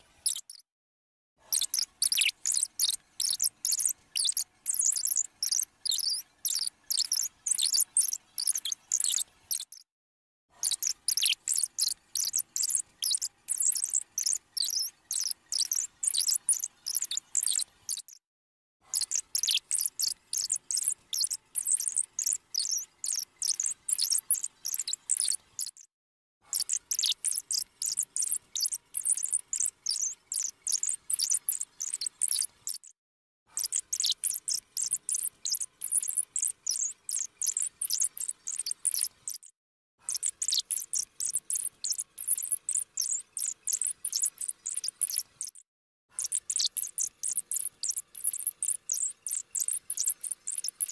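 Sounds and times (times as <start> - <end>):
high-pitched squeaky chattering voice: 0.0 - 0.6.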